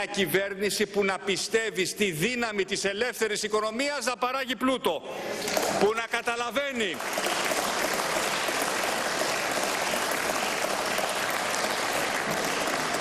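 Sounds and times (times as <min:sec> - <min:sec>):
dense applause: 0:06.6 - 0:13.0.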